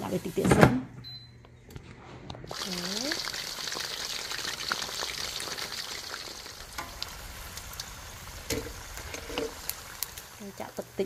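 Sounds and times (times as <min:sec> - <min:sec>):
deep-frying sizzle with crackles: 0:02.5 - 0:11.0.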